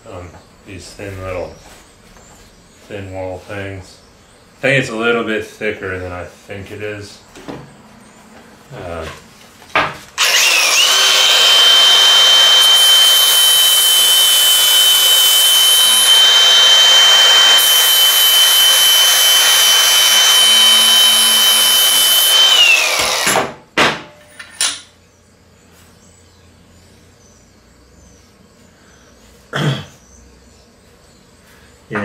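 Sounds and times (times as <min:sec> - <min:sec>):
angle grinder whining: 0:10.2 - 0:23.5.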